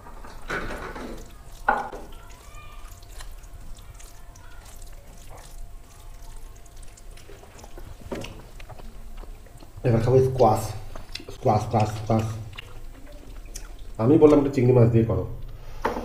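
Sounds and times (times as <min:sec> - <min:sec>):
drinking from plastic bottle: 0:00.7 - 0:14.0
fingers squishing rice: 0:01.2 - 0:09.8.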